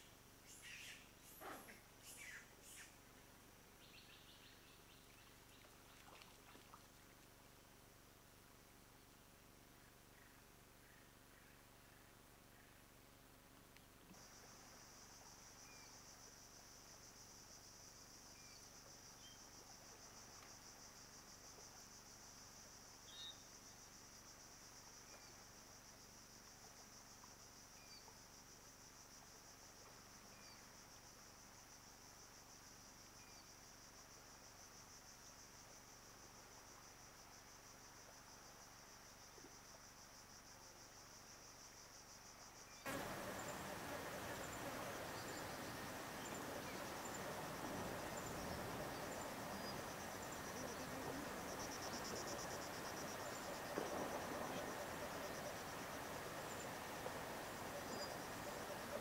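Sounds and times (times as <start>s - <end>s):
insect chirps: 0.0s - 59.0s
insect chorus drone: 0.0s - 59.0s
broad noise: 42.9s - 49.5s.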